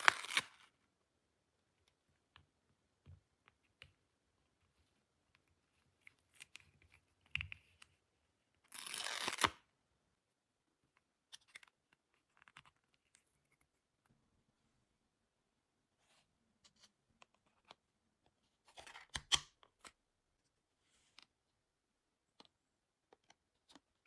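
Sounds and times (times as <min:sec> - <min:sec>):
packaging tearing: 0:00.0 - 0:00.5, 0:08.7 - 0:09.6.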